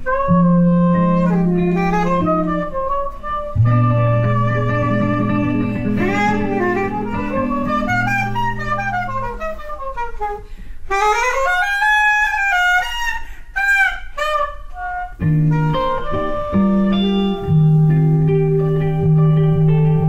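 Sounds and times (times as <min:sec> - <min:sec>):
low held guitar chords: 0:00.0 - 0:10.2, 0:14.7 - 0:20.0
soprano saxophone melody: 0:00.0 - 0:20.0.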